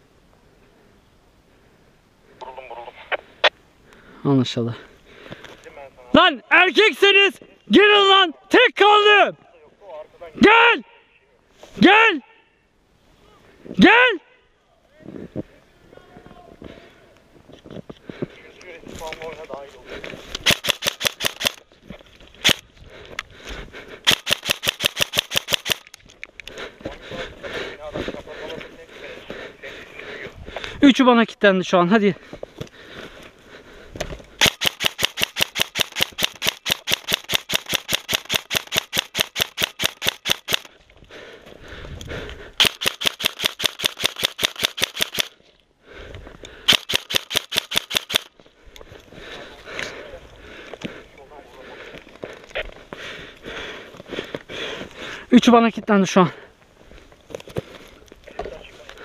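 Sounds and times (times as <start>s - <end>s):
airsoft rifle shots: 20.4s - 21.6s, 22.4s - 22.6s, 24.1s - 25.9s, 34.4s - 40.7s, 42.6s - 45.4s, 46.7s - 48.3s.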